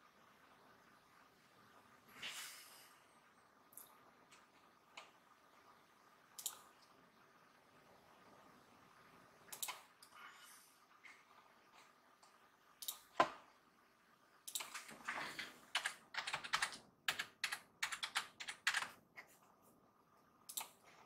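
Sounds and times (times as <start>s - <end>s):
keyboard typing: 14.5s - 19.0s.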